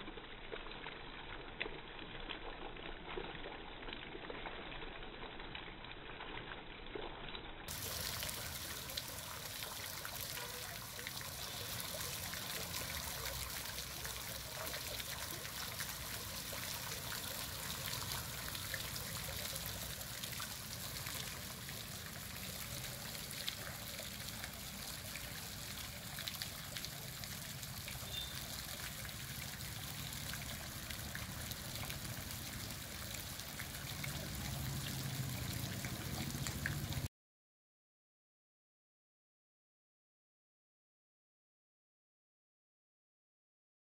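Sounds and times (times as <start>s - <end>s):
fountain spray splashing: 7.7s - 37.1s.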